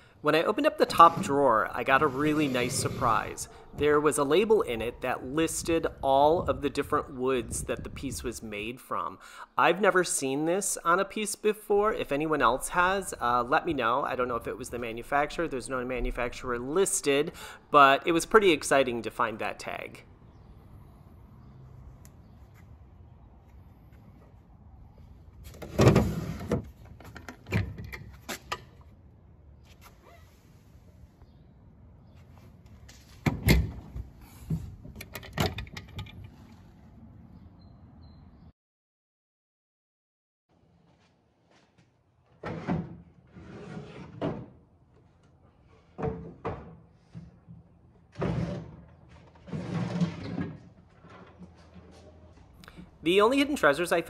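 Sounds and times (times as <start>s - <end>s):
wooden drawers scraping: 0.8s - 3.5s, 25.6s - 27.7s, 42.4s - 44.6s, 48.1s - 52.4s.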